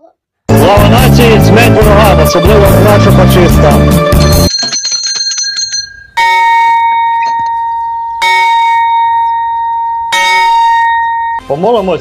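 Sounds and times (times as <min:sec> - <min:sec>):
large bronze bell ringing: 0:04.2 - 0:11.4.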